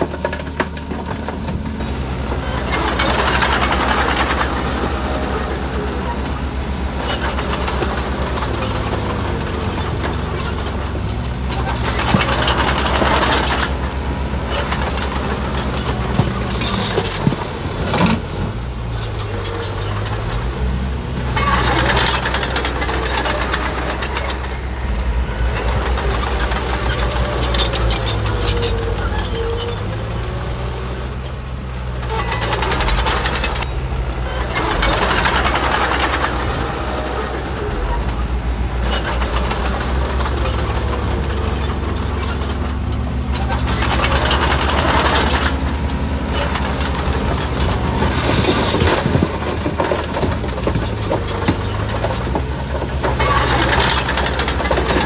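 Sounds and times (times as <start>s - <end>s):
heavy machinery diesel engines revving: 0.0s - 55.0s.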